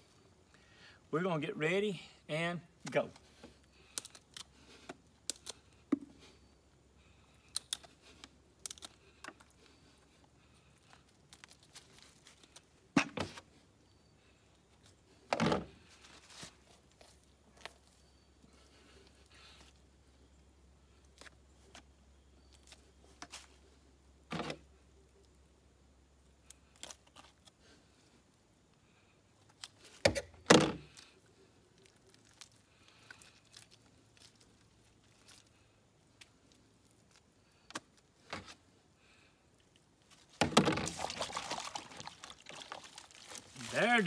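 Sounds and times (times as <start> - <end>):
splashing in bowl of water: 40.5 - 43.6.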